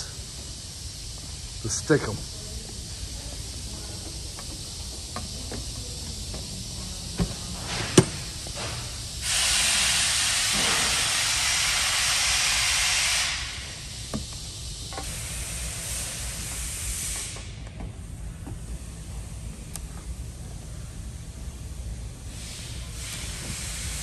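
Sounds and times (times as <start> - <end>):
fainter higher hiss: 0.0 - 17.6
steady hiss: 0.0 - 24.0.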